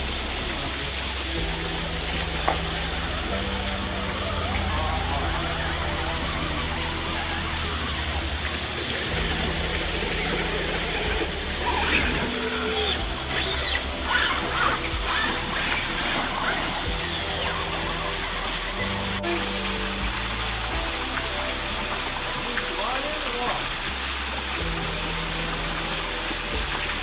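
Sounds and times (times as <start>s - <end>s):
background music: 0.0s - 27.0s
running water hiss: 0.0s - 27.0s.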